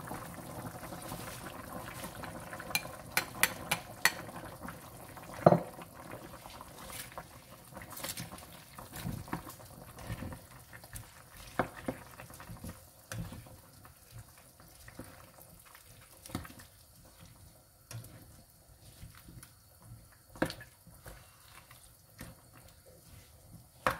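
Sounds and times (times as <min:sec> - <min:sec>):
spatula knocking and scraping pan: 0:02.7 - 0:04.2.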